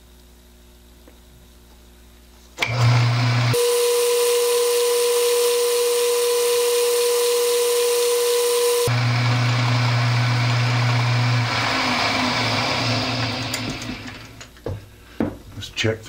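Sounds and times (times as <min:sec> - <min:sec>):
metal lathe whining: 0:02.6 - 0:14.4.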